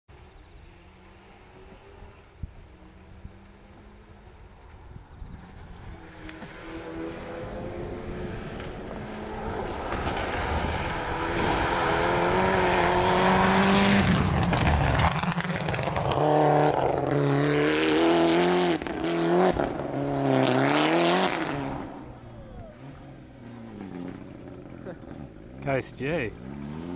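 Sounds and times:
car engine racing: 0.2 - 26.9.

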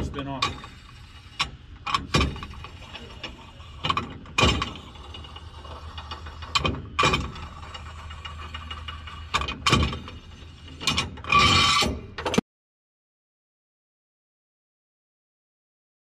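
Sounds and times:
scraping rasp: 0.0 - 12.4
mechanical clicks and knocks: 1.4 - 12.4.

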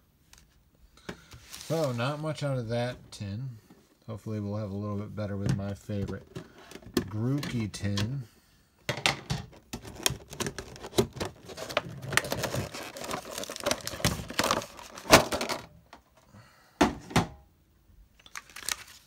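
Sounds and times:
plastic packaging crackling: 1.4 - 2.3, 9.7 - 15.6, 18.2 - 19.0.

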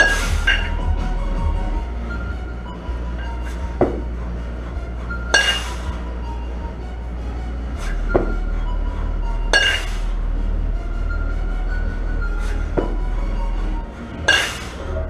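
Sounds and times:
kettlebell clink: 5.3 - 5.9, 9.5 - 9.9.

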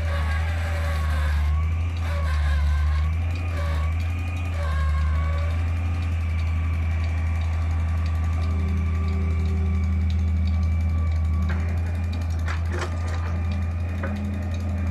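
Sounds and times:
diesel engines humming: 0.0 - 14.9
soil and stones rattling: 11.4 - 14.9.

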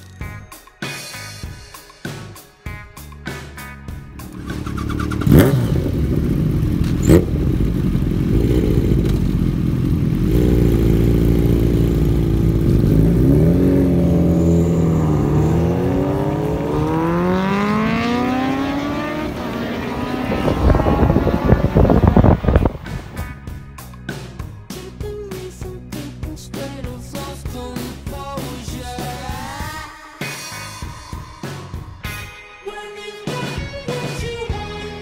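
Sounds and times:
motorcycle engines accelerating: 4.1 - 23.2.

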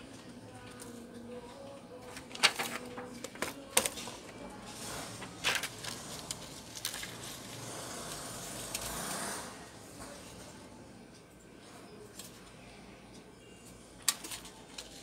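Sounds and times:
plastic sheet rustling: 5.0 - 7.8.

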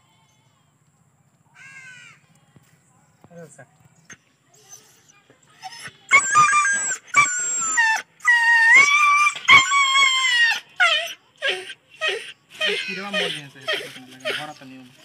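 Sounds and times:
dog crying out in pain: 6.1 - 14.4.

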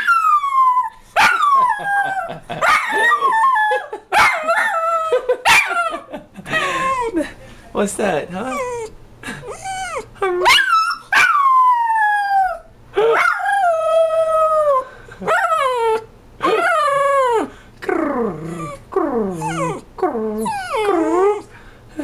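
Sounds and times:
dog howling: 0.0 - 6.0, 9.7 - 17.5, 18.2 - 21.5.

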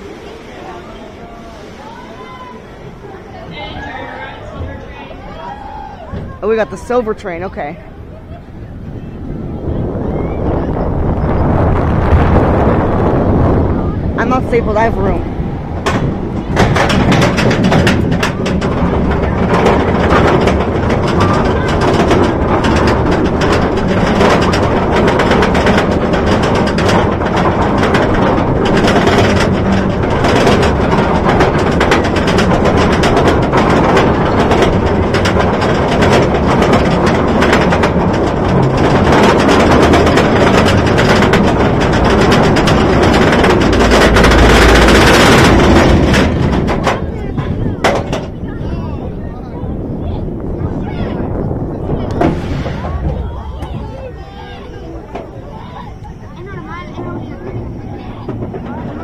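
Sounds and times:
anti-rollback rapid clicking: 14.2 - 48.7, 51.4 - 59.0.

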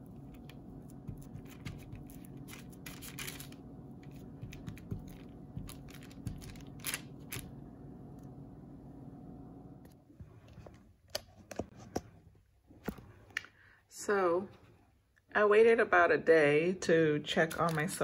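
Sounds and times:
steady low hum: 0.0 - 15.4
paper crinkling: 0.1 - 7.5.

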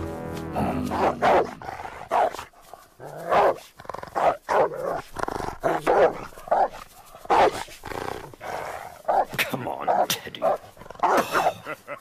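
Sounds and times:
dog barking aggressively: 2.1 - 2.4, 3.3 - 5.0, 5.6 - 7.7, 9.0 - 11.5.

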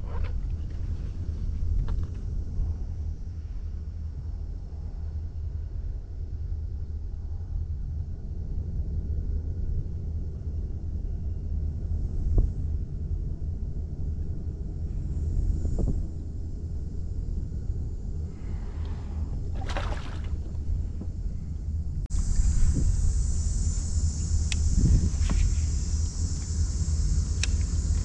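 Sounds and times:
steady low rumble: 0.0 - 28.0
fish splashing into water: 19.5 - 20.5.

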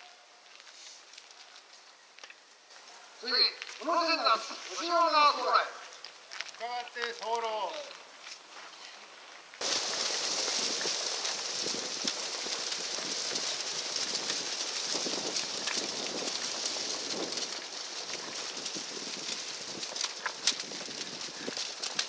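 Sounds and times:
bonfire crackling and popping: 0.4 - 22.0.

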